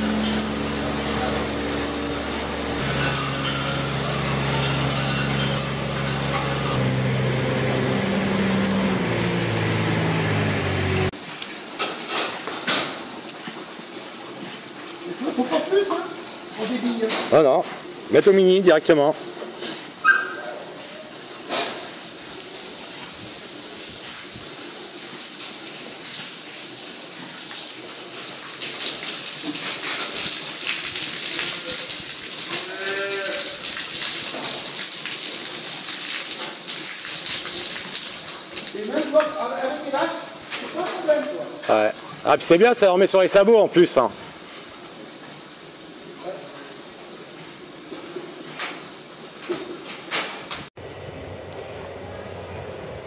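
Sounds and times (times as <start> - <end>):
powder spreader hissing rush: 0.0 - 11.1
small engine running: 0.0 - 11.1.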